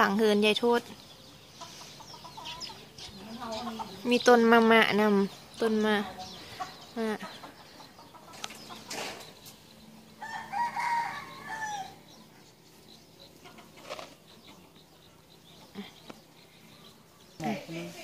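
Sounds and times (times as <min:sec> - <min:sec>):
rooster crowing: 0:10.2 - 0:12.0.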